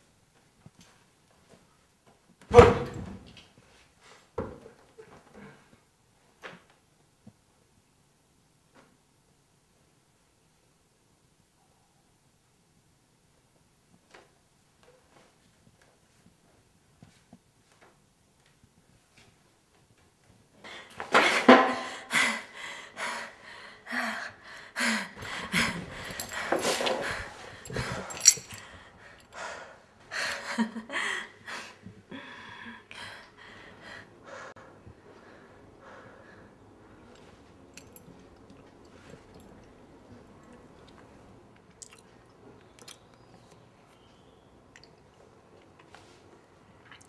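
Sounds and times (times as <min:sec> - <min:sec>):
breaths: 0:20.6 - 0:37.2
man chewing noisily: 0:40.5 - 0:43.6.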